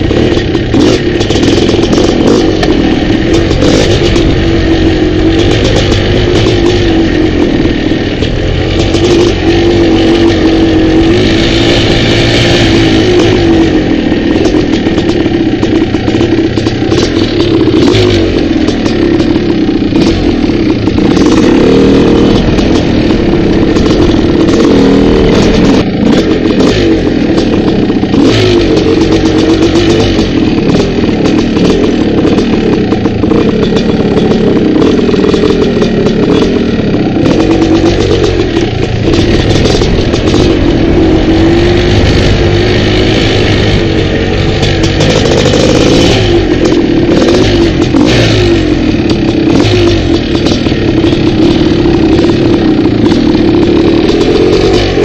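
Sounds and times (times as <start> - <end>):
bike knocking and rattling: 0.0 - 55.0
dirt bike engine revving: 0.0 - 55.0.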